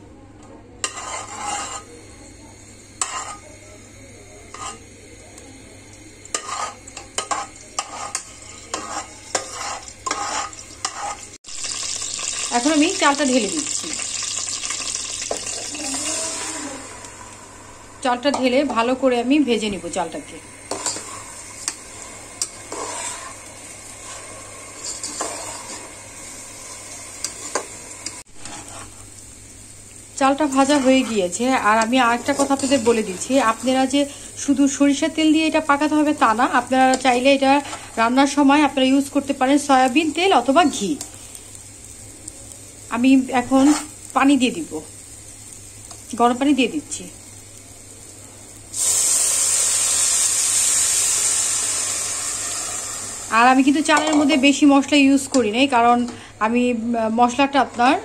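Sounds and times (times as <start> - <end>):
spices in hot oil: 0.3 - 58.0
metal spoon scraping a pot: 0.8 - 1.9, 3.0 - 3.4, 4.5 - 4.8, 6.3 - 11.3, 20.7 - 21.8, 22.4 - 26.0, 28.4 - 29.0.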